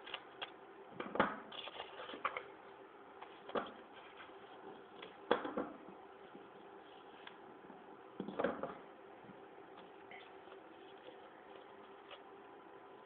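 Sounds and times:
paper rustling and crinkling: 0:01.5 - 0:02.5, 0:03.2 - 0:05.2.

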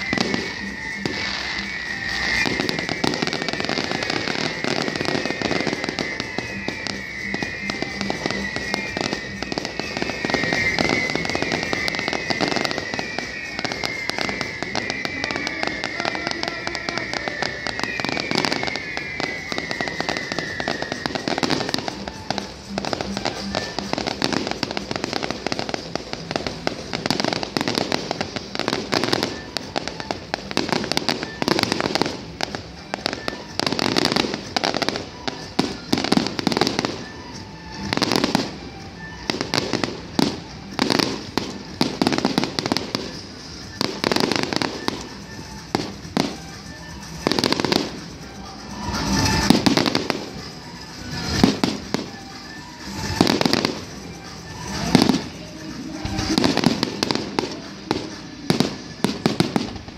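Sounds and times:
fireworks bursting with crackling: 0:00.0 - 0:59.9
whistling fireworks: 0:00.0 - 0:59.9.

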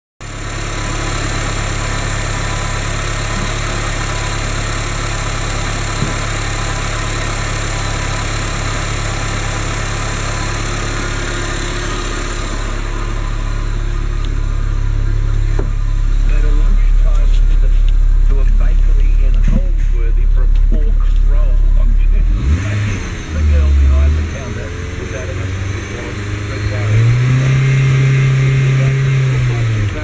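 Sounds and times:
car engine idling: 0:00.2 - 0:30.0.

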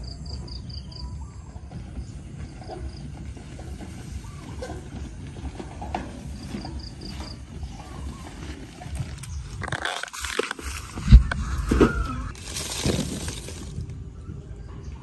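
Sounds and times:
wheelbarrow wheel rumbling: 0:00.2 - 0:15.0
grass rustling: 0:03.3 - 0:14.0
fruit tipped into wheelbarrow: 0:08.0 - 0:13.9.

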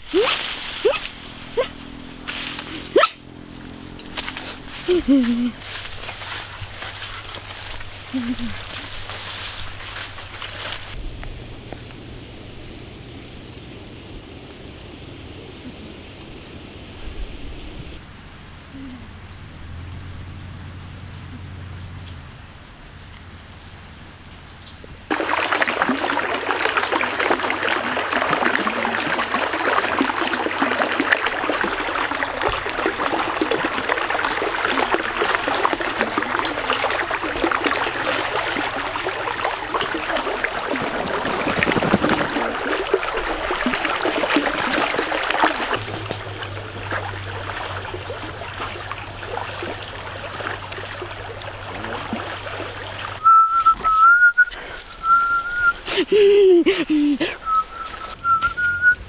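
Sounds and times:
stream running and trickling: 0:00.0 - 0:18.3, 0:18.9 - 0:59.0.

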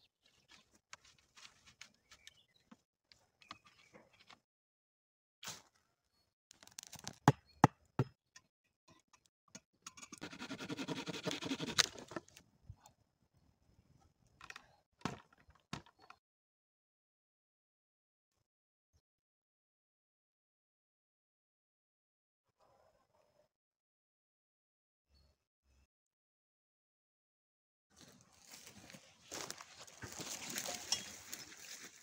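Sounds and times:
pine boughs rustling: 0:28.0 - 0:32.0.

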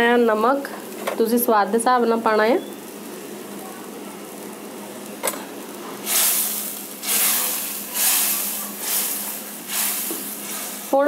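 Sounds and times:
gravy sizzling in a pan: 0:00.0 - 0:11.0
spatula stirring sizzling gravy: 0:05.6 - 0:11.0.

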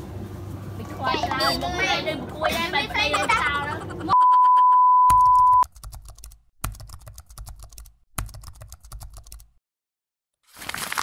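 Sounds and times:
keyboard typing clicks: 0:05.1 - 0:09.5.

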